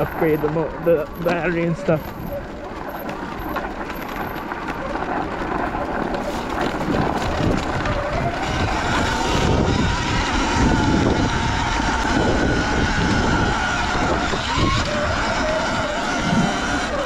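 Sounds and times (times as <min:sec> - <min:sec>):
electric motorbike motor whining: 0:00.0 - 0:17.0
tyres on dirt: 0:00.0 - 0:17.0
wind buffeting: 0:00.0 - 0:17.0.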